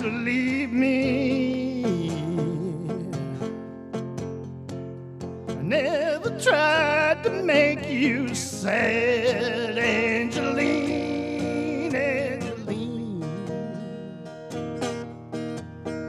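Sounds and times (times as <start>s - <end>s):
person singing: 0.0s - 3.5s, 5.6s - 14.5s
acoustic guitar chords: 0.0s - 16.0s.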